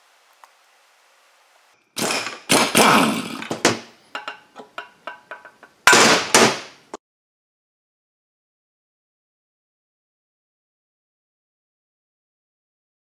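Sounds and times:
metal parts clanking: 0:02.0 - 0:06.6.

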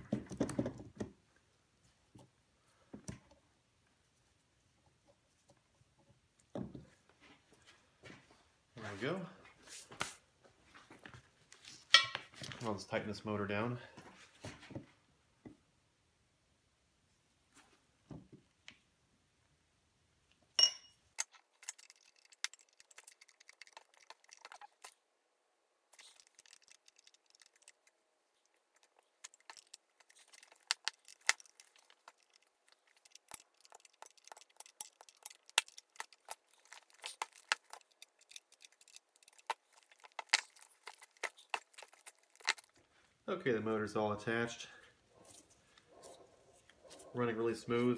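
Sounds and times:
sharp ringing metallic clink: 0:20.6 - 0:21.0.

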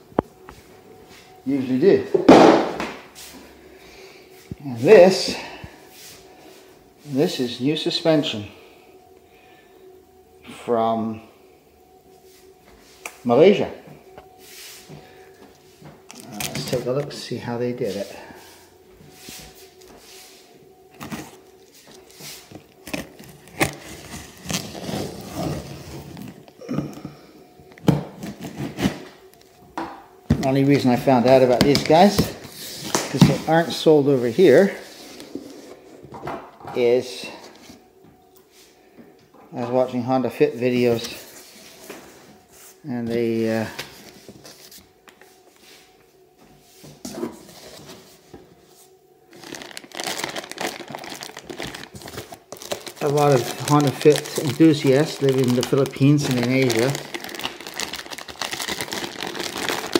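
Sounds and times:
plastic crinkling: 0:16.0 - 0:17.4, 0:20.9 - 0:26.6, 0:49.3 - 0:59.9.

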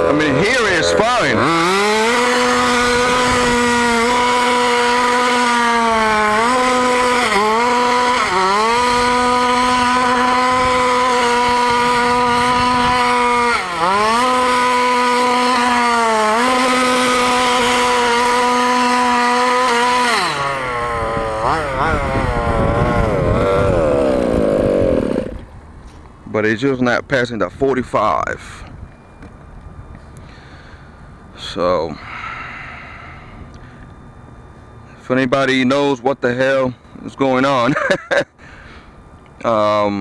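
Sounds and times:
two-stroke engine running flat out: 0:00.0 - 0:25.5.

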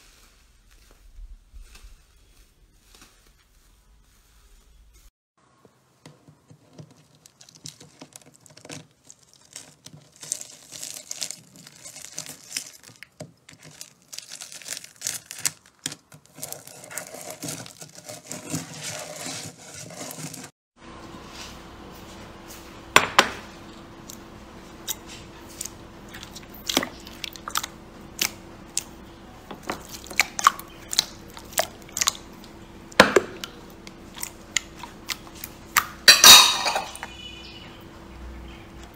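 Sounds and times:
slime crackling and crunching: 0:06.9 - 0:20.5, 0:29.7 - 0:32.7.

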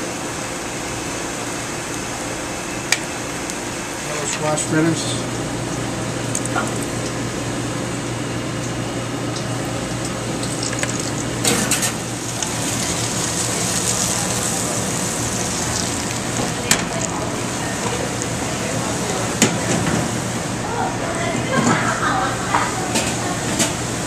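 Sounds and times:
oil sizzling in deep fryer: 0:00.0 - 0:21.2
steady low hum: 0:00.0 - 0:24.0
sharp crackles: 0:12.4 - 0:17.2.

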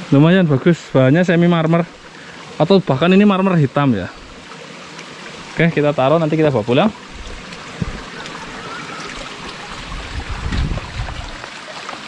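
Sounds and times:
river water rushing over rocks: 0:04.2 - 0:12.0
low bumps: 0:07.1 - 0:08.2, 0:09.4 - 0:11.4.

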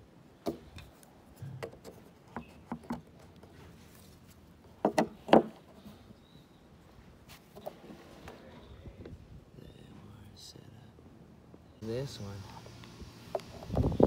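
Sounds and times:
surfboard knocks and taps: 0:04.8 - 0:05.6.

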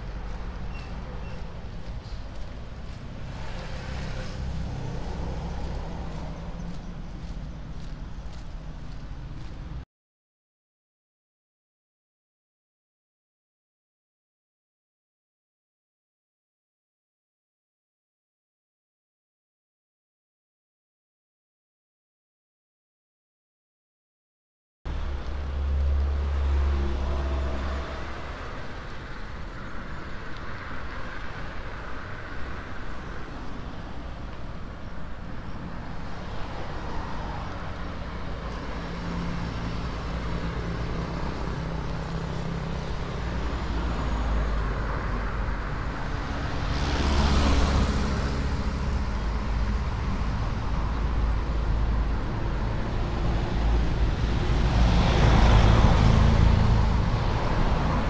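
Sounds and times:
cars passing on road: 0:00.0 - 0:09.8, 0:24.9 - 0:58.0.

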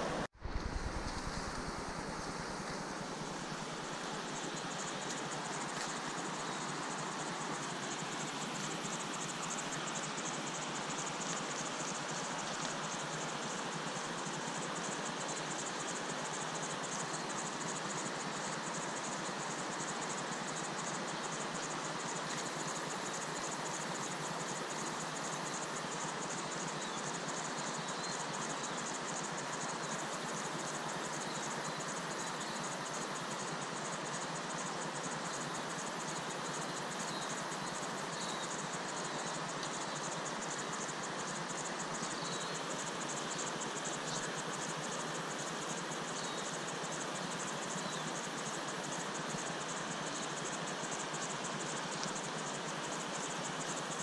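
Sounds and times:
river water rushing: 0:00.0 - 0:11.6
insect chorus: 0:00.0 - 0:54.0.

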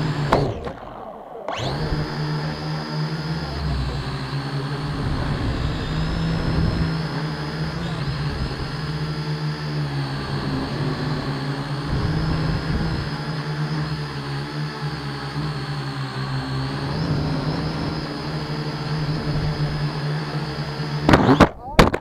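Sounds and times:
quadcopter motors buzzing: 0:00.0 - 0:22.0.

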